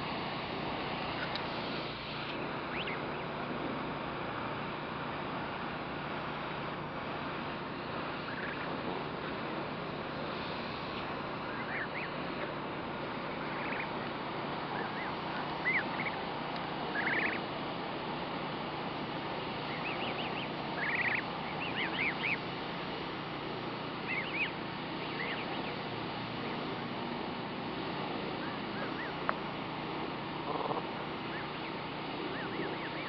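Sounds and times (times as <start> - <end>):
steady background hiss: 0.0 - 33.0
goslings peeping: 1.0 - 3.4, 8.0 - 9.4, 10.0 - 26.6, 28.2 - 33.0.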